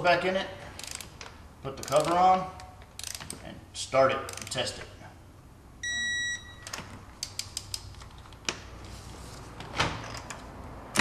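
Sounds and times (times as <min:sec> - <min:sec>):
wrench clicking against metal: 0:00.8 - 0:01.2, 0:01.8 - 0:03.4, 0:04.3 - 0:04.6, 0:07.2 - 0:07.9.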